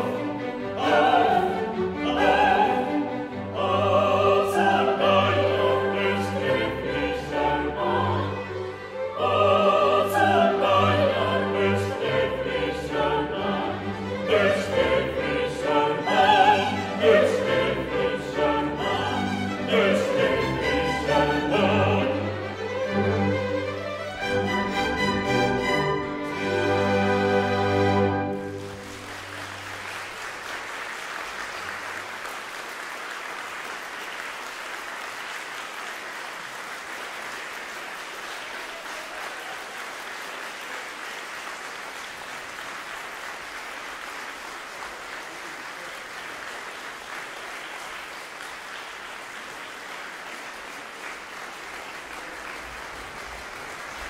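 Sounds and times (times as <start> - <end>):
audience applauding: 24.6 - 54.0.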